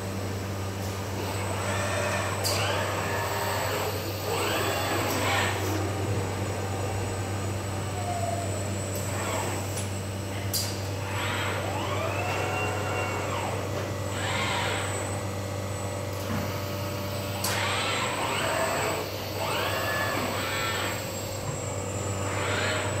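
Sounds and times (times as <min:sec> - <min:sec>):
low machinery hum: 0:00.0 - 0:23.0
robot arm servos whining: 0:01.2 - 0:05.8, 0:07.9 - 0:09.9, 0:10.5 - 0:15.2, 0:17.3 - 0:21.6, 0:22.2 - 0:23.0.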